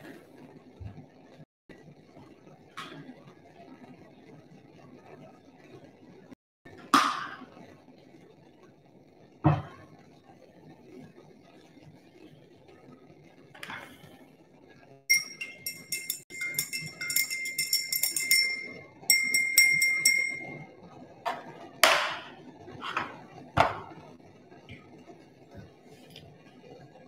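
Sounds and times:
glass rod clinking in beaker: 15.1s - 20.6s.

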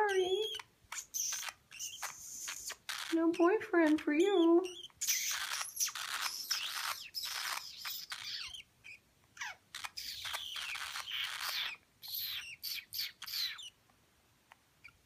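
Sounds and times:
parakeets chirping and warbling: 0.0s - 13.8s.

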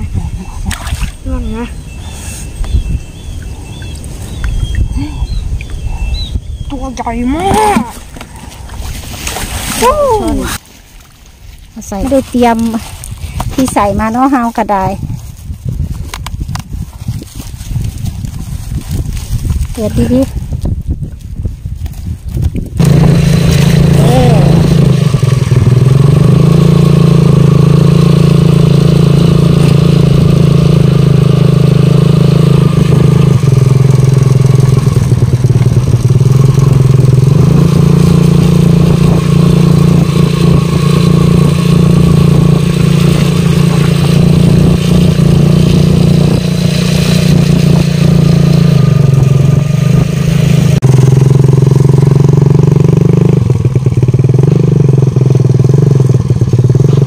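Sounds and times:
small motorcycle engine running: 22.5s - 57.0s.

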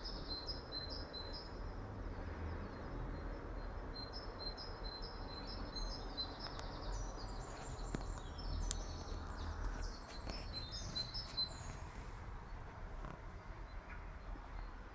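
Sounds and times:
small birds chirping: 2.6s - 14.9s
steady low rumble: 5.6s - 14.6s.

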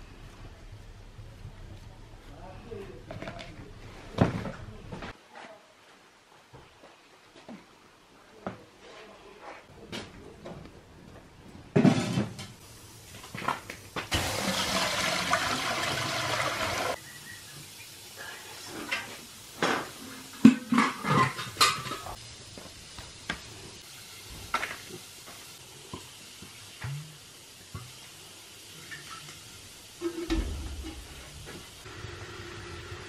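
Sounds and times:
pots and utensils clanking: 11.7s - 12.6s, 18.7s - 22.2s, 30.0s - 31.8s.

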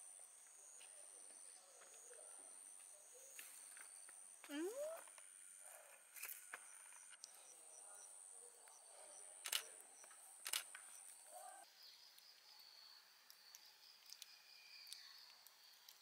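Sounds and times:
sharp clicks: 9.4s - 11.0s.

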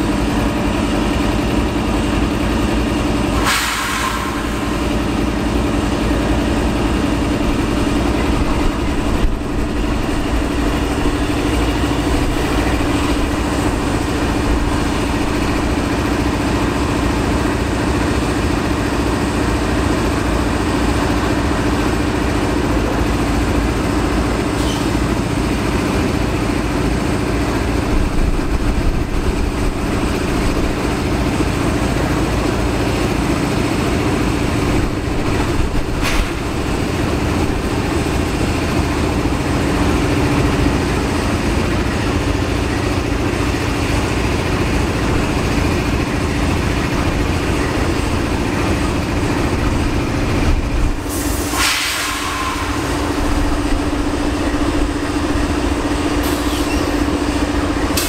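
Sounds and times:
diesel locomotive idling: 0.0s - 58.0s
air hissing: 3.4s - 5.1s, 50.9s - 53.6s, 56.2s - 57.2s.

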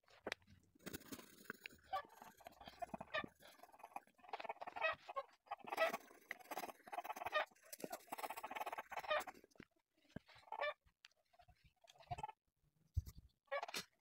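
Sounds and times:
pencil scratching on paper: 0.8s - 9.6s.

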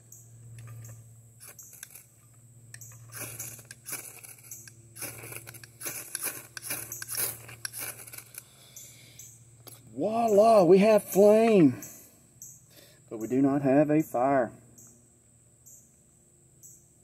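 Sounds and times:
knife scraping ferrocerium rod: 0.6s - 2.1s, 2.8s - 8.5s.

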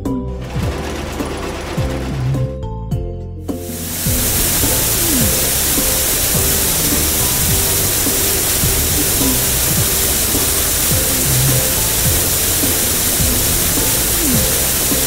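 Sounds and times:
cheerful background music: 0.0s - 15.0s
cartoon water spray hiss: 3.5s - 15.0s
downward-sliding tones: 3.7s - 15.0s.

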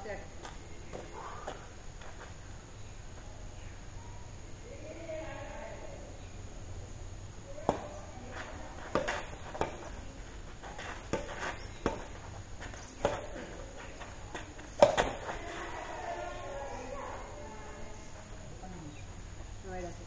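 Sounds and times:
rackets smacking shuttlecock: 7.5s - 15.6s.

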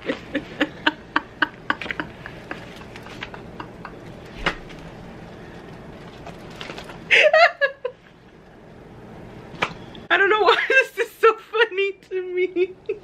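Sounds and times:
woman laughing hard: 0.0s - 4.2s, 7.1s - 8.0s, 12.1s - 13.0s.

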